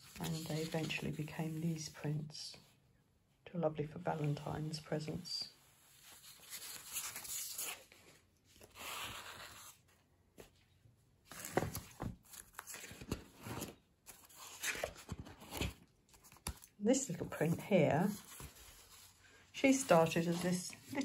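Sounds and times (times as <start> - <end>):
paper rustling: 0.0 - 1.2, 11.3 - 21.0.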